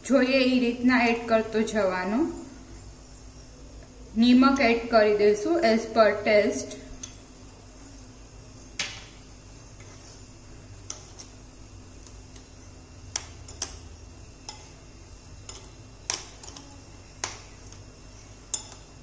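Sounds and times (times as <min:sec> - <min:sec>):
low steady hum: 0:00.0 - 0:19.0
metal spoon clinking glass bowl: 0:13.2 - 0:17.8, 0:18.4 - 0:19.0.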